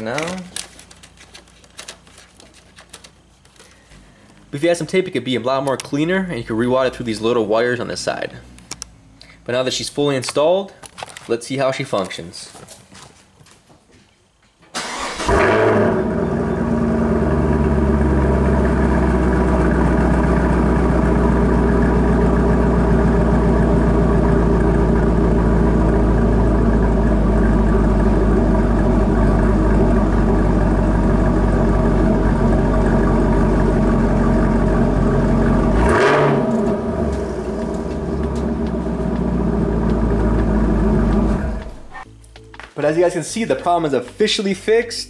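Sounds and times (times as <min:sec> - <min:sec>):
car engine idling: 0:14.8 - 0:42.0.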